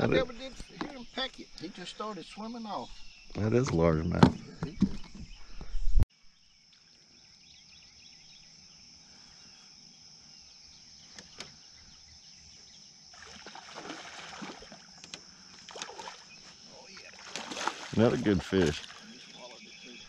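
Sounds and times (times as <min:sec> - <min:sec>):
fish splashing at the surface: 0:13.1 - 0:15.0, 0:15.6 - 0:16.3, 0:17.0 - 0:19.2.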